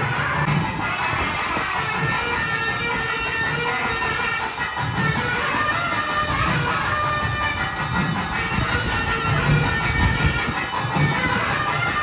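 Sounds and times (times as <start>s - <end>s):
double-reed pipe steady tones: 0.0s - 12.0s.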